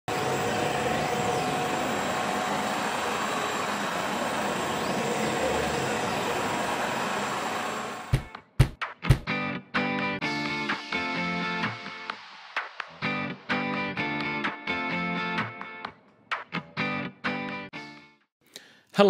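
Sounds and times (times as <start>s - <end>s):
milling machine running: 0.1s - 8.2s.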